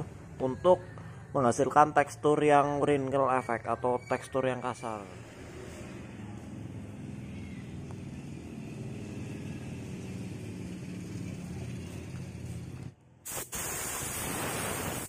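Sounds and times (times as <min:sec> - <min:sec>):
spray gun blowing air: 0:13.2 - 0:15.0.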